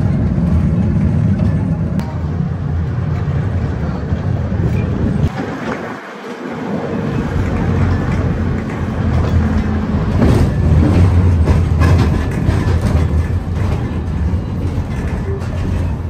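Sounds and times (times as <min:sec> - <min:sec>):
electric tram rumbling on track: 0:00.0 - 0:16.0
wheels knocking over rails: 0:05.2 - 0:16.0.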